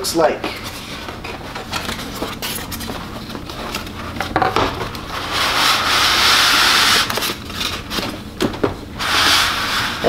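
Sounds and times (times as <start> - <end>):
styrofoam scraping out of box: 5.2 - 7.7, 9.0 - 10.0.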